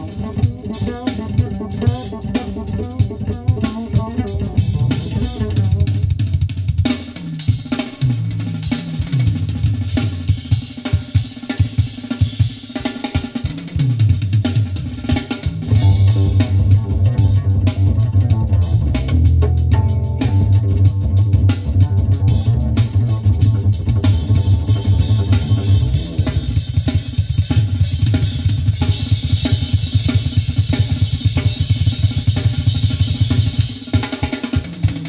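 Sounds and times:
deep bass line: 0.0 - 6.4, 15.6 - 29.4
drum and bass music: 0.0 - 35.0.

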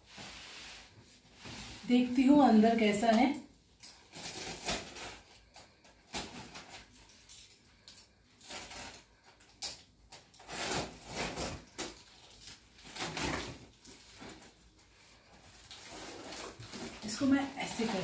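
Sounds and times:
packing rustling: 15.4 - 18.0.

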